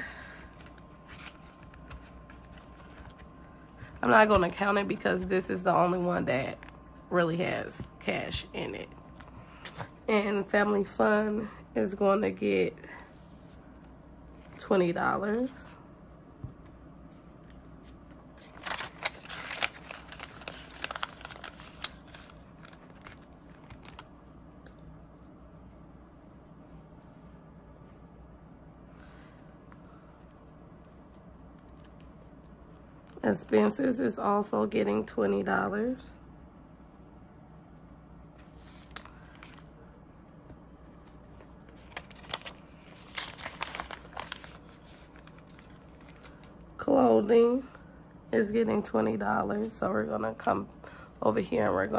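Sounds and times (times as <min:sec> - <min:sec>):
paper and plastic pouch crinkling: 0:17.3 - 0:24.2, 0:40.7 - 0:46.6.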